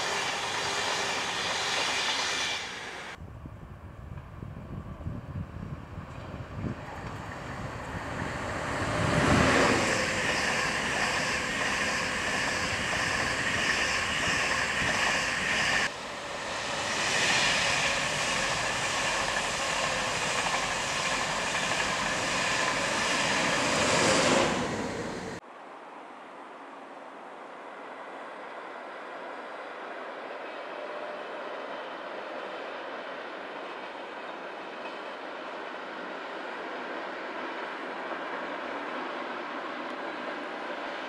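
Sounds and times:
passenger train rumbling past: 0.0 - 25.4, 27.4 - 41.0.

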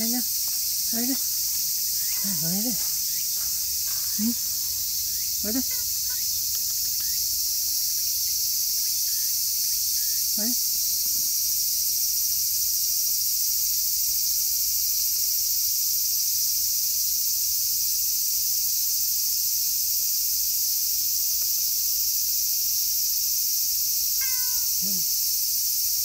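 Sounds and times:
insects shrilling: 0.0 - 16.3, 19.9 - 26.0.

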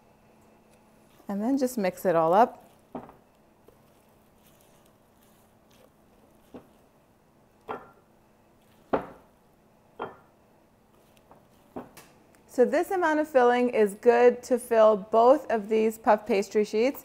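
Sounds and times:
spatula knocking against dishes: 7.6 - 8.1, 8.8 - 9.3, 10.0 - 10.3.

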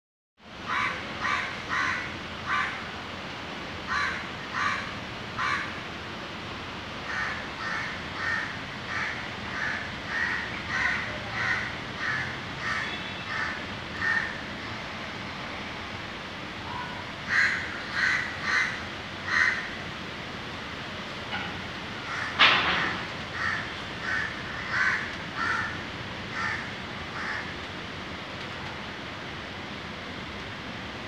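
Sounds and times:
crow cawing: 0.7 - 2.8, 3.9 - 5.7, 7.1 - 14.4, 17.3 - 19.7, 22.0 - 27.5.

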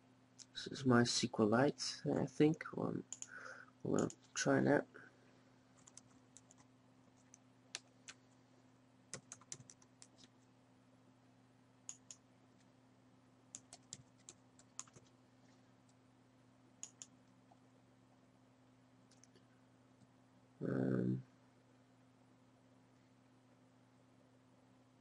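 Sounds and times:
low electrical hum: 0.0 - 25.0
computer keyboard typing: 3.1 - 4.3, 5.8 - 8.2, 9.1 - 10.3, 11.9 - 12.2, 13.5 - 15.1, 16.8 - 17.1.

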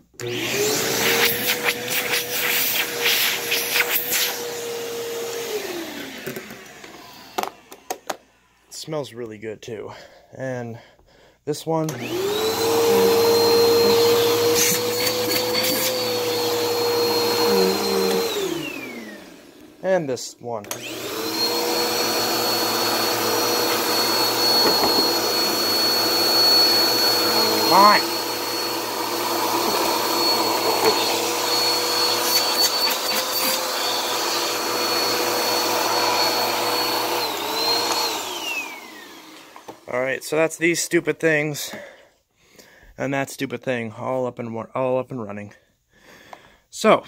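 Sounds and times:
vacuum cleaner motor whine: 0.1 - 8.6, 11.9 - 19.8, 20.6 - 39.9.

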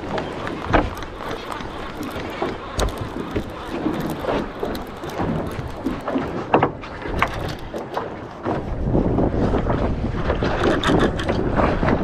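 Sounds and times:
sharp clicks and knocks: 0.0 - 8.6
choppy water: 0.0 - 12.0
wind buffeting microphone: 0.0 - 12.0.

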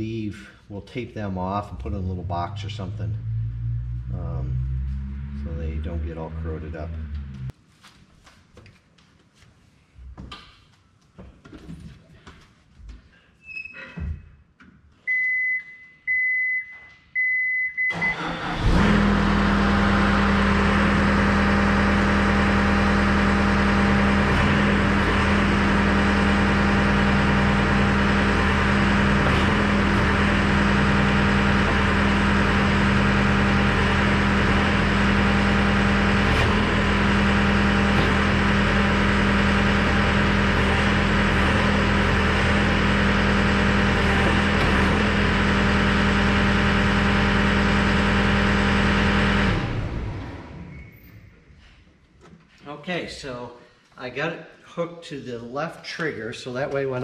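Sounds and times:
diesel engine starting and idling: 0.0 - 7.6, 17.8 - 51.4.

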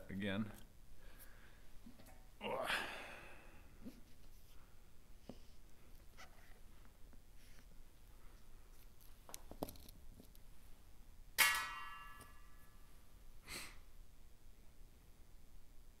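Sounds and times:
sharp ringing clank: 11.4 - 12.8.

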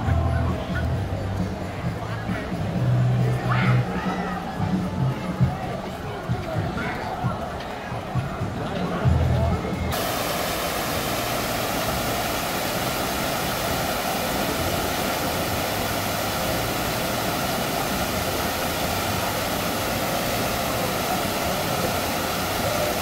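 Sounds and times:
rushing water: 9.9 - 23.0.

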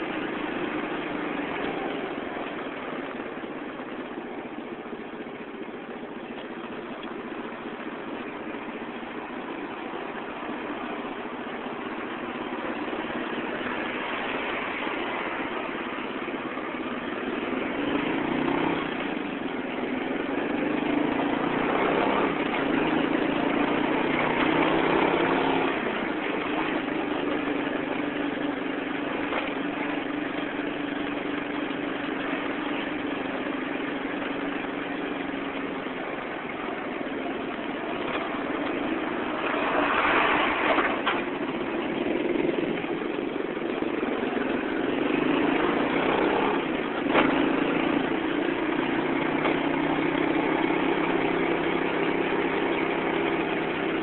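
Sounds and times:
traffic engines humming: 0.0 - 54.0.

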